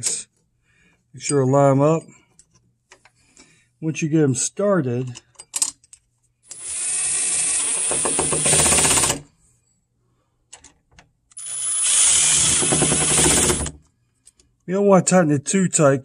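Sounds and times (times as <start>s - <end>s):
impact driver driving screws: 6.5s - 9.2s, 11.4s - 13.8s.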